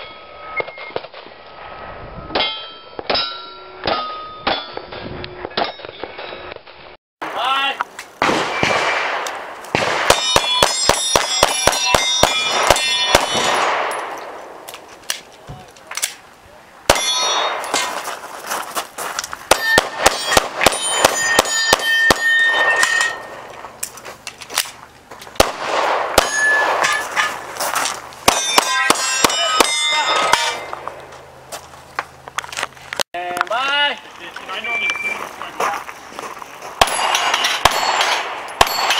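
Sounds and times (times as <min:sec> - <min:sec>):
bullets clanging on steel plate: 0:02.4 - 0:06.6, 0:16.9 - 0:18.0, 0:19.5 - 0:24.0, 0:26.2 - 0:27.4, 0:28.3 - 0:30.8, 0:36.8 - 0:38.9.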